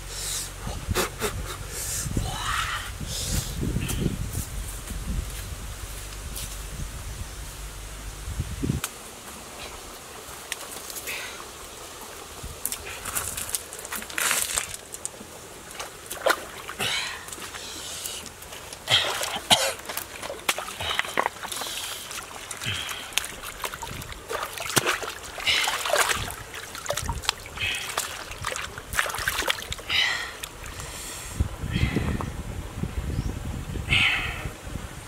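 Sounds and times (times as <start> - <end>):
stream water splashing and trickling: 8.8 - 31.5
hands swishing and scrubbing in water: 12.2 - 30.9.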